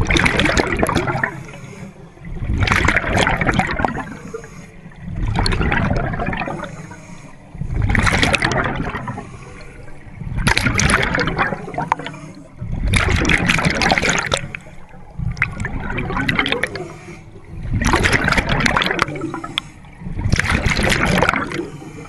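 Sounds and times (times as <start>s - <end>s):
bubbling exhaust: 0.0s - 1.6s, 2.2s - 6.9s, 7.6s - 21.9s
diver breathing through regulator: 1.2s - 2.2s, 3.8s - 5.2s, 6.4s - 8.0s, 8.7s - 10.2s, 11.6s - 12.8s, 16.4s - 17.6s, 19.1s - 20.2s, 21.4s - 22.0s.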